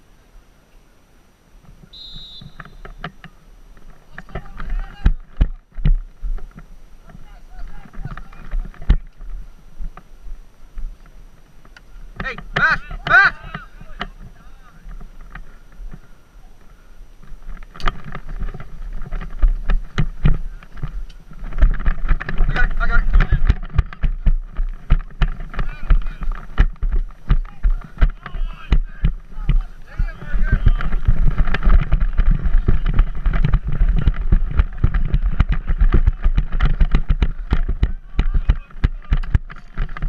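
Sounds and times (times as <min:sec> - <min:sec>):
wind buffeting microphone: 0:04.0 - 0:40.0
running footfall thumps: 0:17.2 - 0:40.0
sharp knocks and clatter: 0:17.4 - 0:40.0.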